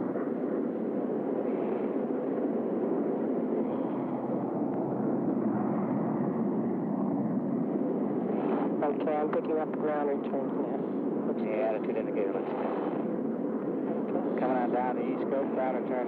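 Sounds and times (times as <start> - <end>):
jet engine rushing in flight: 0.0 - 16.0.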